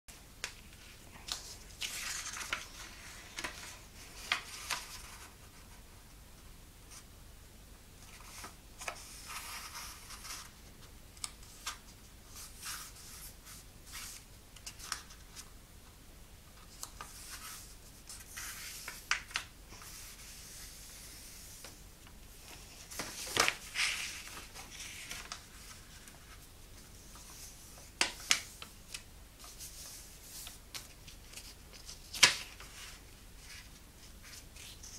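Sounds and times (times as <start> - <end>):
paper rustling and scraping: 0.7 - 5.8, 8.0 - 10.6, 16.7 - 28.6, 29.4 - 34.9
sharp clicks of paper folds: 18.3 - 19.5, 28.0 - 29.6, 30.4 - 32.8.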